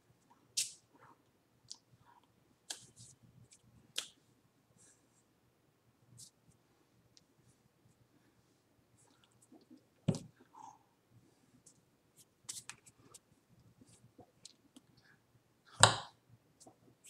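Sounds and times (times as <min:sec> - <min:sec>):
hands slapping and brushing: 0:02.7 - 0:04.2, 0:12.2 - 0:13.3.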